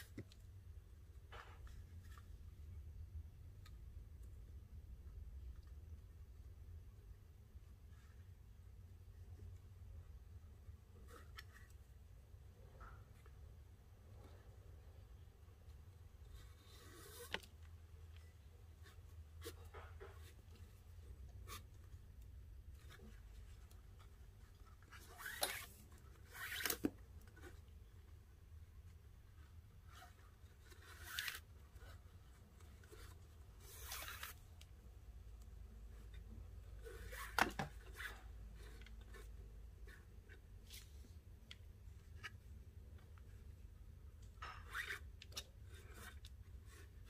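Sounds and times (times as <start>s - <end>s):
cord swishing and rubbing: 16.1s - 28.2s, 28.9s - 35.0s, 35.6s - 41.3s.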